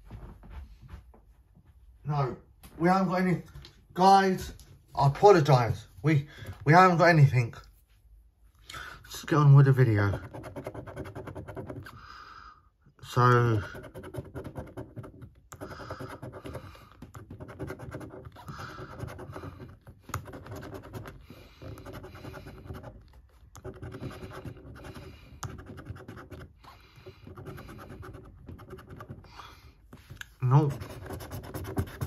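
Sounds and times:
coin scratching scratchcard: 10.1s - 11.9s, 13.5s - 26.5s, 30.6s - 32.0s.

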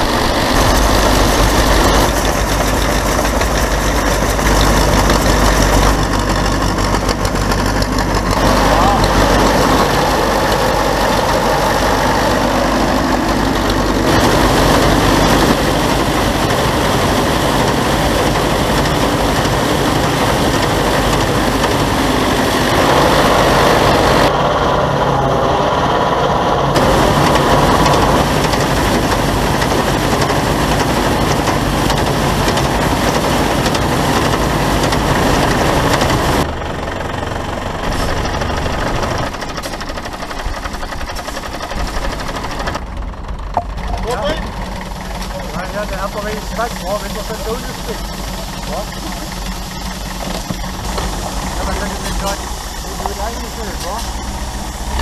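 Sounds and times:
combine harvester machinery din: 0.0s - 55.0s.

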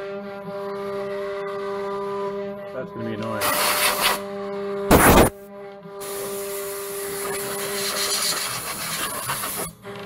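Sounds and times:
router spindle whine: 0.0s - 7.8s
router bit cutting wood: 0.1s - 5.3s.

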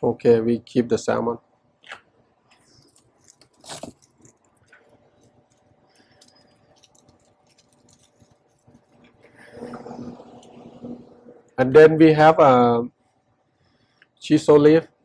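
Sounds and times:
cling wrap crinkling: 2.6s - 9.4s.

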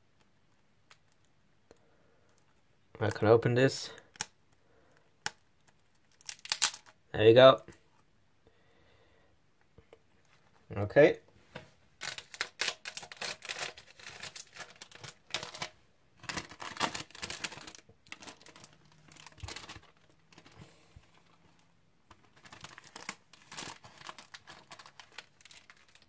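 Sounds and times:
plastic wrap crinkling and tearing: 5.3s - 7.0s, 12.0s - 26.0s.

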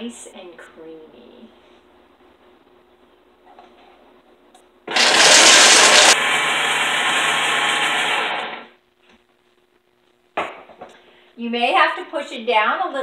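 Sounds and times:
blender grinding nuts: 4.9s - 8.6s.

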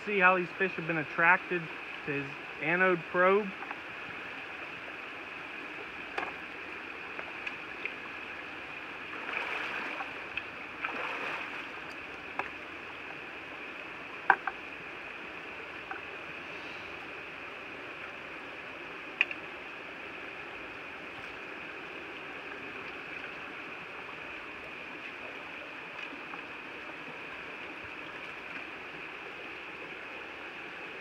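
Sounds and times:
flowing water rushing: 0.0s - 31.0s
boots splashing through stream: 9.1s - 11.8s.

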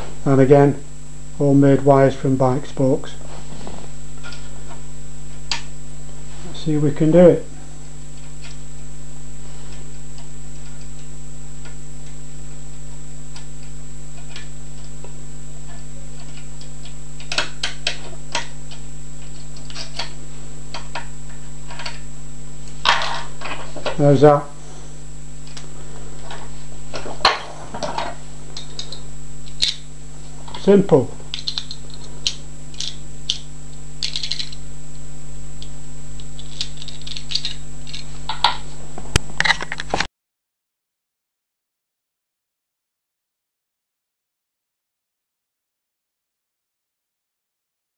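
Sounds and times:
steady low hum: 0.0s - 40.1s.

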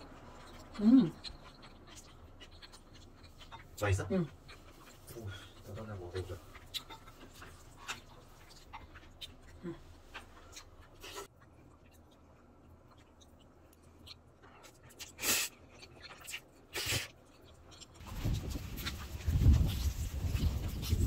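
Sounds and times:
rustling noise: 18.0s - 21.0s.

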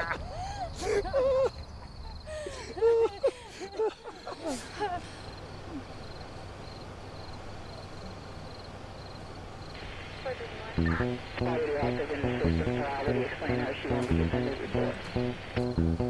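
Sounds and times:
people laughing hard: 0.0s - 5.3s
faint background hiss: 0.0s - 16.0s.

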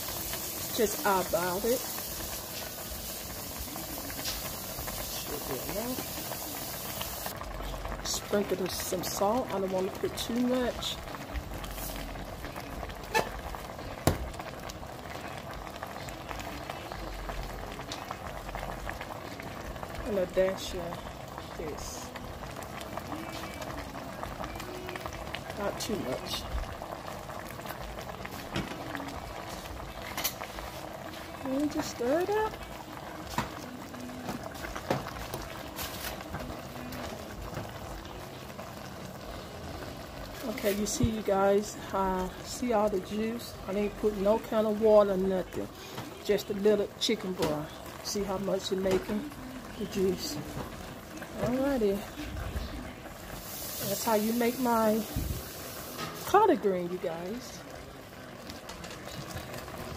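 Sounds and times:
salt hissing into pot: 0.0s - 7.3s, 53.3s - 56.3s
pot bubbling: 0.0s - 59.9s.

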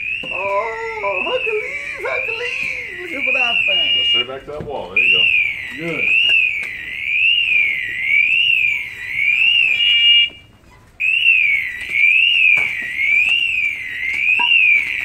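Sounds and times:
sweeping alarm tone: 0.0s - 15.0s
steady beeping tones: 0.1s - 10.4s.

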